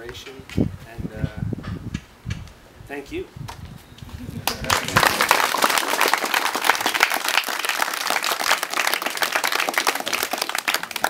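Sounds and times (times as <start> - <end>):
audience applauding: 4.4 - 11.0.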